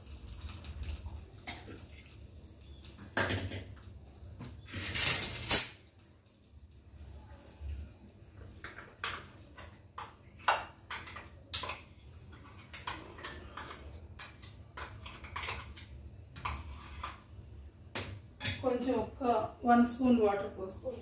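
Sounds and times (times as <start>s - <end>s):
hot oil crackling and popping: 0.0s - 18.7s.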